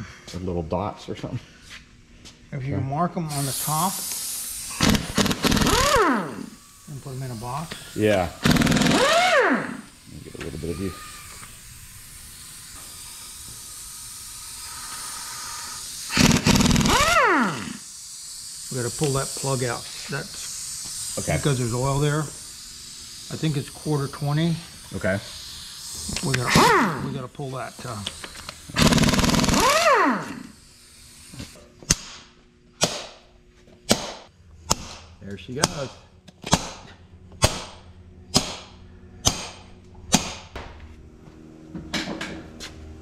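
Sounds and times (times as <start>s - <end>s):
air motor whine spinning down: 3.2s - 31.6s
air hiss: 3.3s - 31.6s
impact wrench hammering: 4.7s - 11.5s, 16.1s - 17.7s, 18.8s - 19.6s, 26.0s - 27.2s, 27.8s - 30.5s, 31.4s - 33.2s, 33.9s - 40.7s.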